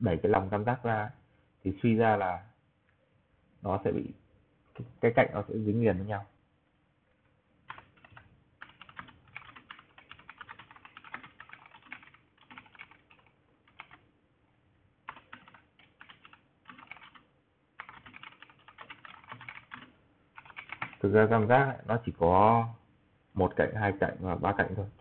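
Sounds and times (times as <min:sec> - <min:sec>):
typing on computer keyboard: 0:07.7 - 0:14.0, 0:15.1 - 0:21.0.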